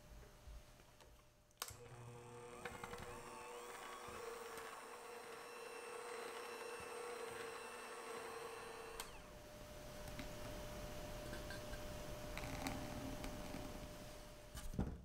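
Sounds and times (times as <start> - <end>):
electric hand mixer running: 1.7 - 11.2.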